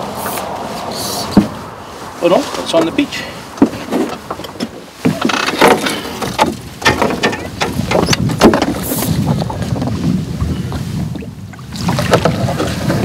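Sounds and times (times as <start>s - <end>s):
landing net knocking against boat: 3.6s - 9.8s.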